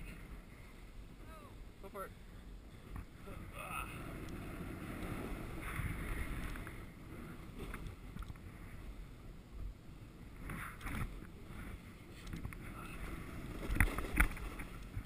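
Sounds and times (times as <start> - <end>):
wind on microphone: 2.7 - 15.0
snowboard scraping through snow: 4.0 - 6.5.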